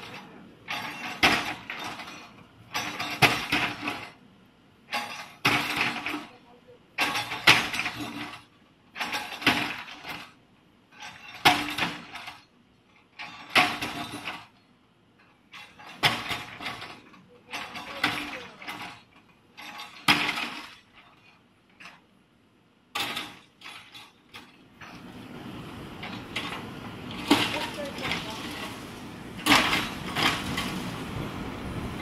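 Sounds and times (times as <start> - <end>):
concrete rubble cracking and clattering: 26.0 - 31.0.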